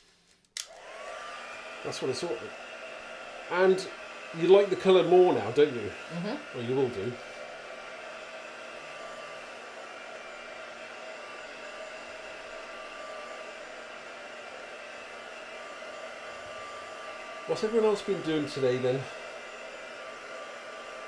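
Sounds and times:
heat tool blowing: 0.6s - 21.0s.

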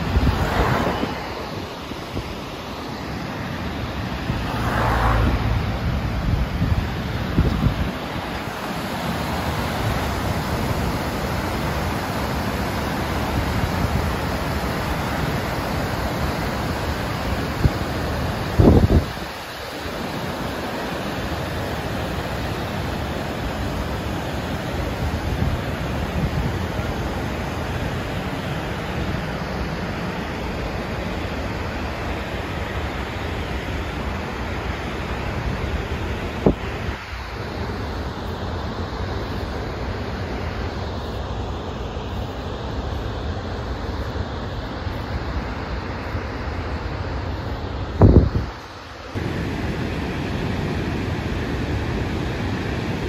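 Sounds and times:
wind buffeting microphone: 0.0s - 2.4s, 3.9s - 8.6s, 18.4s - 19.3s, 47.9s - 48.6s
water rushing over spillway: 0.0s - 53.0s
white water churning: 0.0s - 53.0s.

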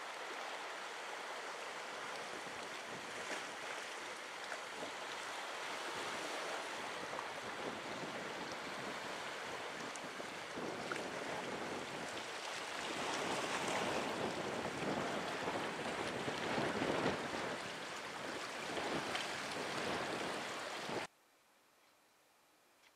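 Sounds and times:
surf washing against rocks: 0.0s - 21.1s.

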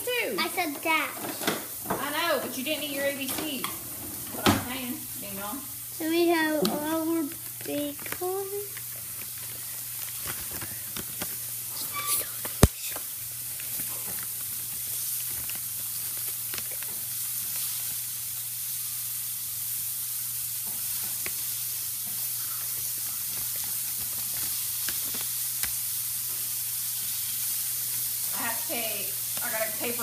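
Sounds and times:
batter sizzling in hot pan: 0.0s - 30.0s.

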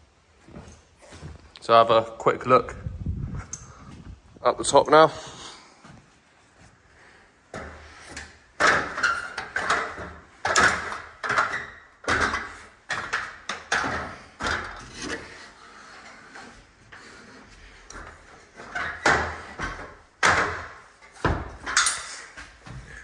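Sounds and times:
boots climbing a ladder: 7.5s - 23.0s.

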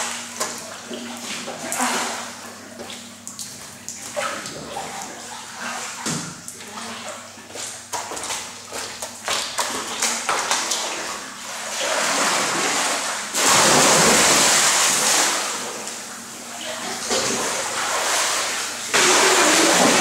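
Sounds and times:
water churning from swimming: 0.0s - 20.0s
splash into pool: 9.3s - 15.8s, 16.8s - 20.0s.

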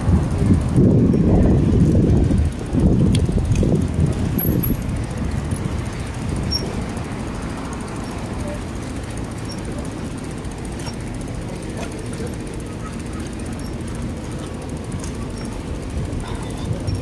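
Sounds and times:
wind noise on microphone: 0.0s - 6.8s
bicycle tyre noise on pavement: 0.0s - 17.0s.

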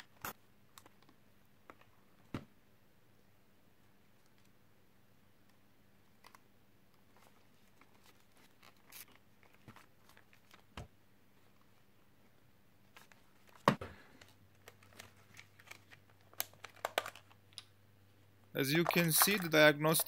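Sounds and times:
plastic clicks and scrapes: 14.2s - 17.4s.

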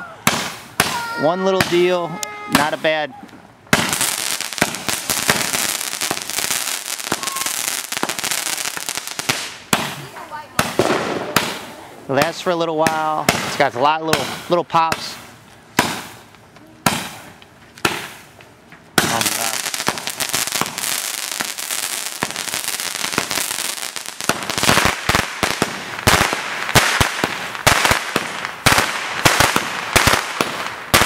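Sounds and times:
firework pops: 9.2s - 11.6s, 15.8s - 21.5s
crackling hiss of sparks: 19.0s - 31.0s.

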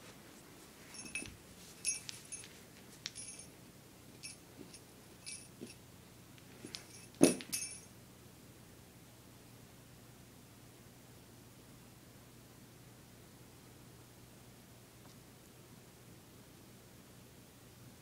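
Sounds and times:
small jingle bell shaken: 0.8s - 3.6s, 4.2s - 5.8s, 6.6s - 7.9s
light thump: 7.2s - 7.8s.

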